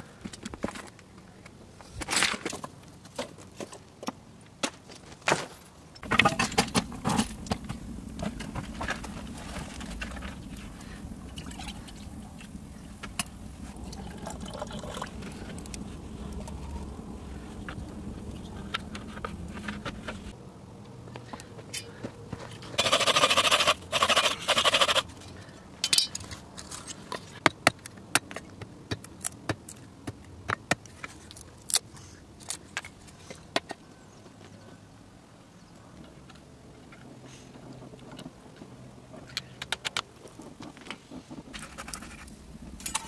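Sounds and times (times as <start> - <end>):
water pouring into a pot: 13.8 - 15.4.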